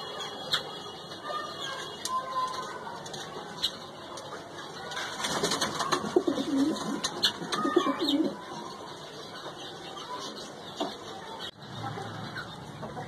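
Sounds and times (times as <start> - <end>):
pigeons cooing: 5.8 - 8.5.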